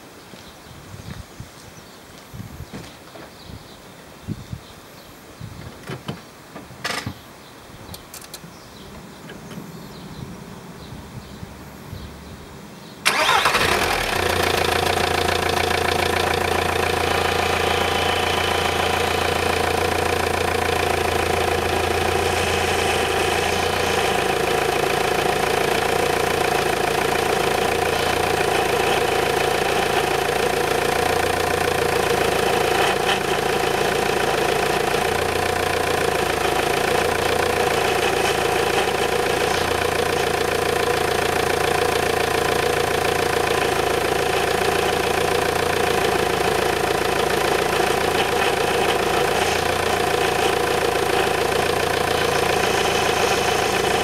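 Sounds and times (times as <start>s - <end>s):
diesel engine starting and idling: 13.0s - 54.0s
power steering pump running: 13.1s - 54.0s.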